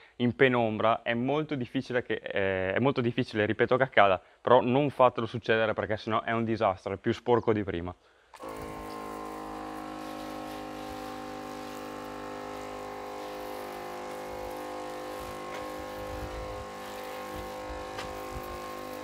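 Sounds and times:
machine humming: 8.4 - 19.0.

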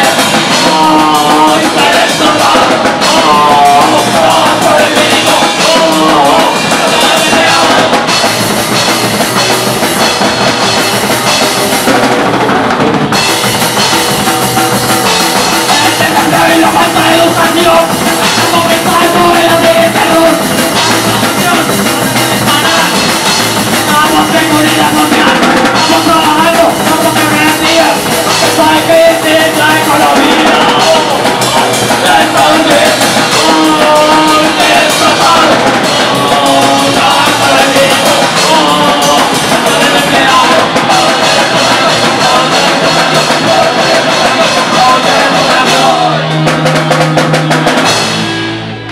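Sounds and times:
sung vocals: 0.0 - 11.8, 12.4 - 48.4
bass guitar: 0.0 - 48.9
distorted electric guitar: 0.0 - 48.9
drum kit: 0.0 - 48.9.

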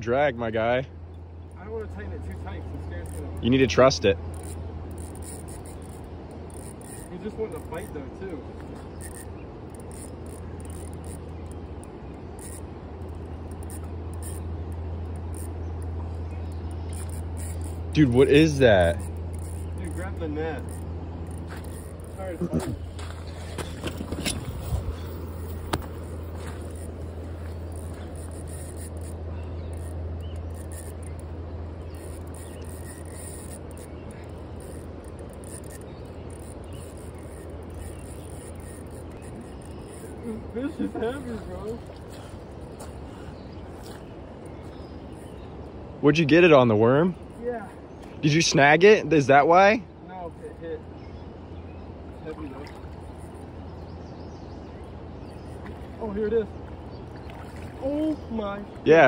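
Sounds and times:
insects calling: 0.0 - 59.0.

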